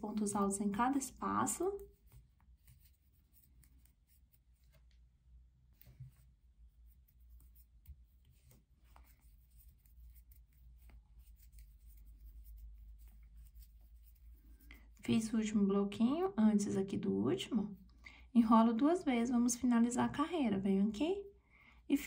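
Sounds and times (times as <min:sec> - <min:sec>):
crochet hook scratching: 0:00.0 - 0:04.9, 0:05.8 - 0:15.2.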